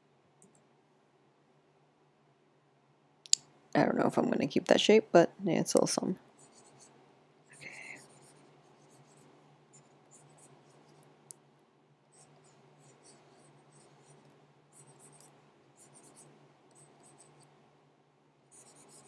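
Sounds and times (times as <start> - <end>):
low steady hum: 0.0 - 19.0
stylus scratching on tablet: 6.4 - 11.2, 12.1 - 17.5, 18.5 - 19.0.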